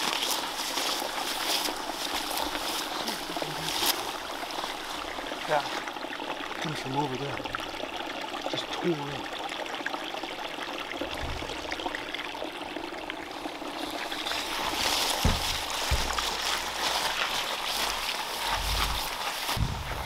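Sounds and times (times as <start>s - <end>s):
stream trickling: 0.0s - 20.0s
low thumps: 11.0s - 12.1s, 14.5s - 17.1s
brush swishing: 14.6s - 19.6s.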